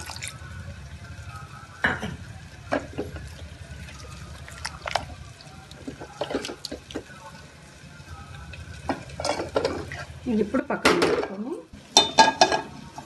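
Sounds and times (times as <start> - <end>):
liquid sloshing: 3.7 - 7.2.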